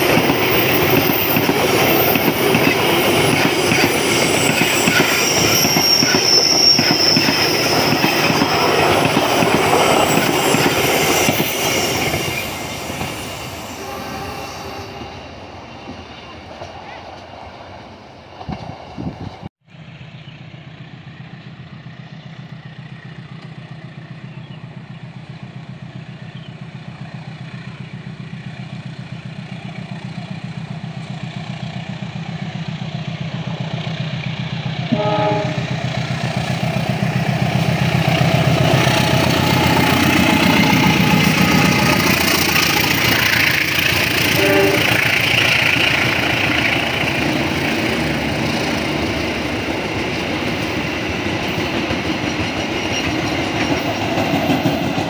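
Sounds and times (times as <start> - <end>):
train coaches clattering over rails: 0.0 - 15.1, 26.1 - 55.0
train horn blast: 13.5 - 15.4, 34.8 - 35.9, 44.1 - 45.3
locomotive engine drone: 19.8 - 55.0.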